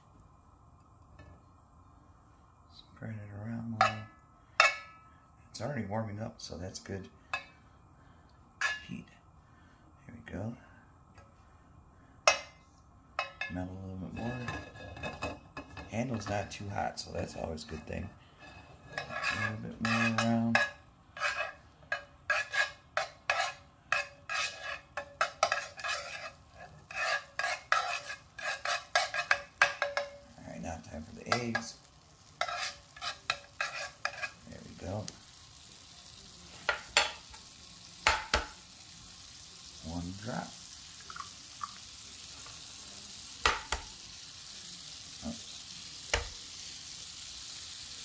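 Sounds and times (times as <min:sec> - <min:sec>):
utensil scraping frying pan: 0:08.6 - 0:08.9, 0:13.2 - 0:40.9, 0:41.5 - 0:48.0
sharp pops of frying fat: 0:36.6 - 0:38.8, 0:43.4 - 0:44.1, 0:46.0 - 0:46.6.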